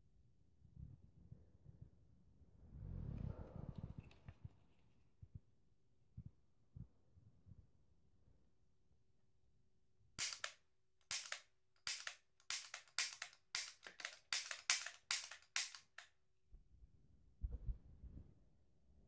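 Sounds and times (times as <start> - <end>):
short sharp hissing bursts: 10.2 - 16.0.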